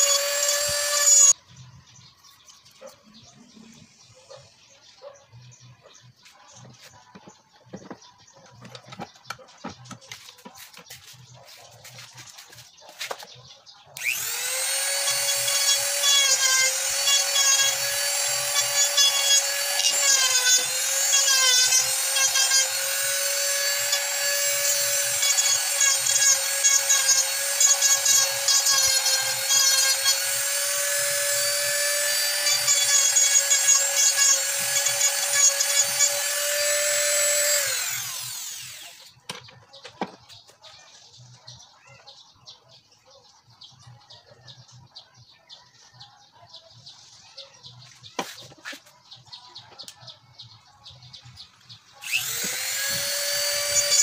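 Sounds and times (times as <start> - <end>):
angle grinder grinding wood: 0.0 - 1.4, 6.2 - 40.5, 51.9 - 54.0.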